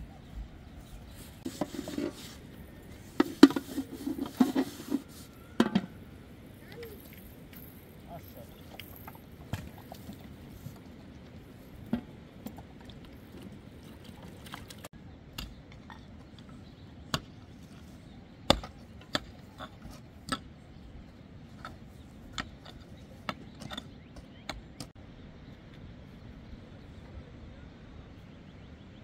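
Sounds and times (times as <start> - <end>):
tools chopping wood and earth: 15.2 - 25.0.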